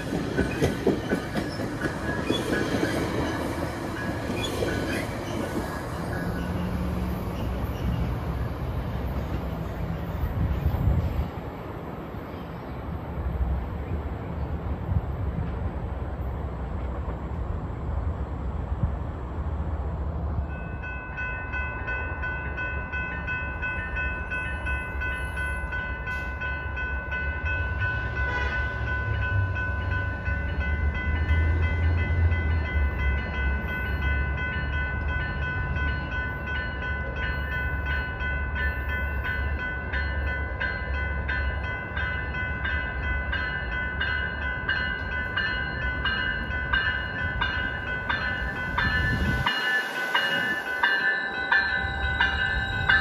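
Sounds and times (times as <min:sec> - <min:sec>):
train wheel clacks: 0:00.0 - 0:05.8
train low rumble: 0:00.0 - 0:53.0
high-pitched ringing: 0:31.8 - 0:53.0.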